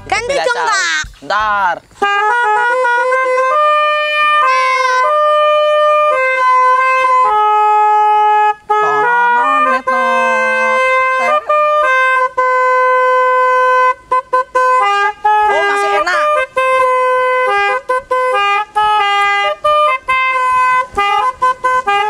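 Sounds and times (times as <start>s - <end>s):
person speaking: 0.0s - 1.9s, 4.4s - 5.1s, 8.8s - 10.4s, 15.5s - 16.4s
toy horn playing a melody: 2.0s - 22.0s.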